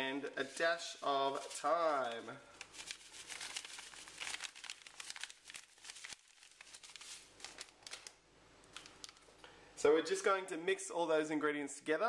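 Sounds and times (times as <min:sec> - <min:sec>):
plastic packet crinkling: 0:01.3 - 0:09.4.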